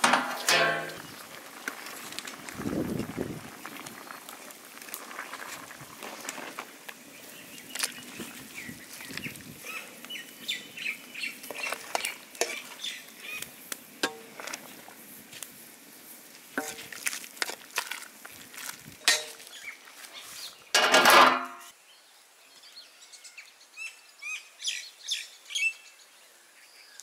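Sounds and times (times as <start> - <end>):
metal utensil scraping a pot: 0.0 - 1.1, 11.4 - 12.8, 16.6 - 18.0, 19.0 - 19.5, 20.8 - 21.7
birds chirping: 7.0 - 14.8.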